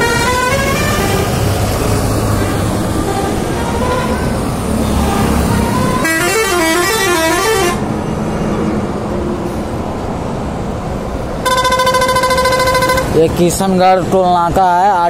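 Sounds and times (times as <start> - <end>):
musical vehicle horn: 0.0 - 1.3, 2.4 - 7.8, 11.4 - 13.2
heavy truck traffic rumbling: 0.0 - 15.0.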